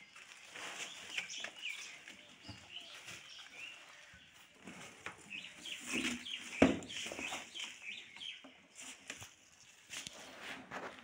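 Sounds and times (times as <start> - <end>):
shredded paper and cardboard rustling: 0.0 - 7.7.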